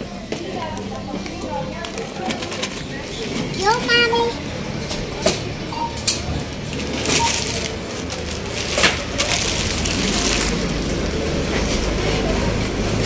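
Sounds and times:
plastic bags rustling: 6.4 - 13.0.

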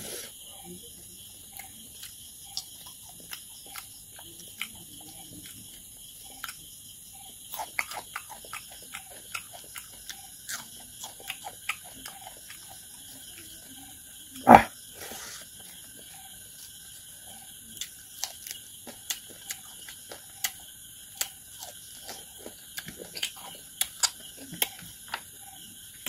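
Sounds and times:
steady hiss: 0.0 - 0.4
person chewing and lip-smacking: 1.5 - 6.7, 7.3 - 13.5, 17.8 - 25.3.

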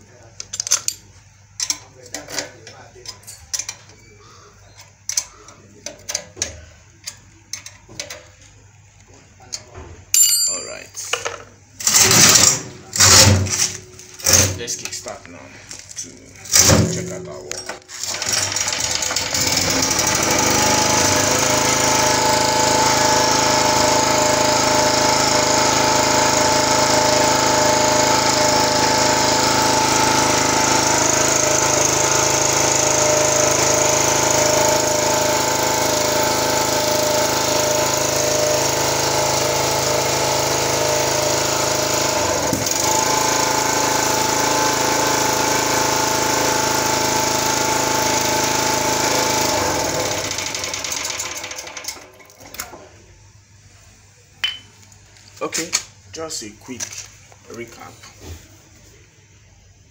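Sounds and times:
generator engine running: 11.8 - 15.8, 16.4 - 52.1.

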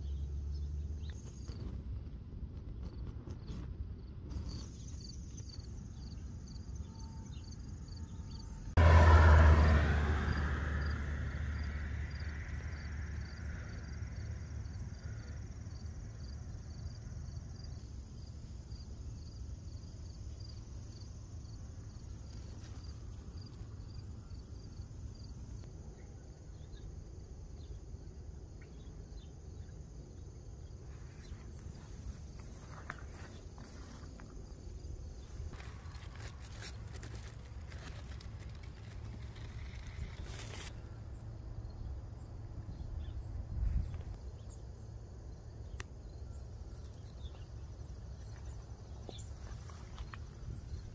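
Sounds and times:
insect chirping: 2.8 - 50.9
rustling: 35.3 - 40.8.

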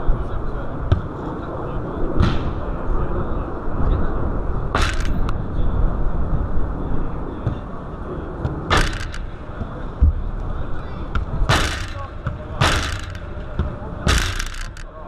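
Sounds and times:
football being kicked: 0.9 - 1.1, 11.1 - 14.3.

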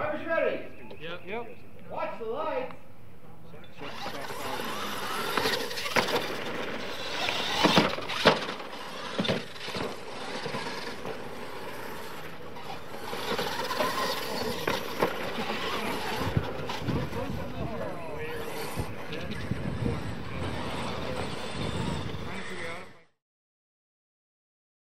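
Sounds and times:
toy truck motors whining: 3.6 - 23.1
tyres churning dirt: 3.7 - 23.0.

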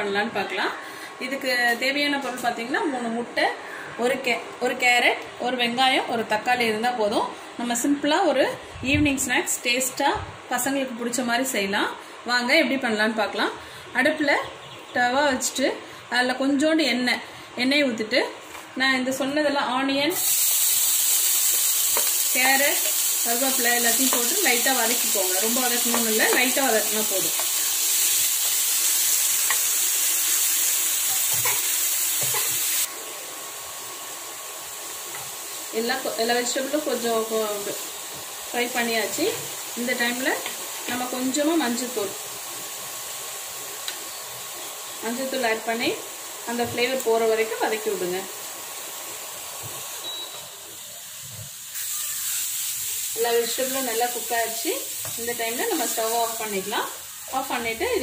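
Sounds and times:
vegetables sizzling in oil: 17.8 - 58.0
spatula squeaking on pan: 51.7 - 52.7.

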